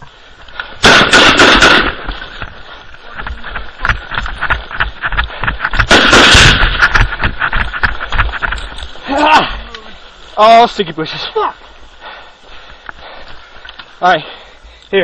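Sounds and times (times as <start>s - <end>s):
automatic gunfire bursts: 0.8s - 2.0s, 5.9s - 6.7s
gear clattering while running: 1.6s - 15.0s.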